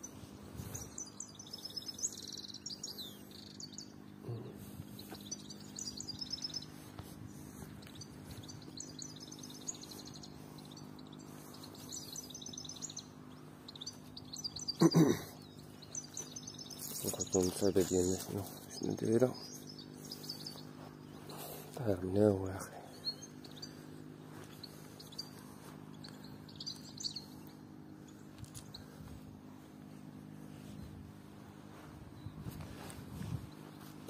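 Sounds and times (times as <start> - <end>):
finches twittering: 0.0 - 34.0.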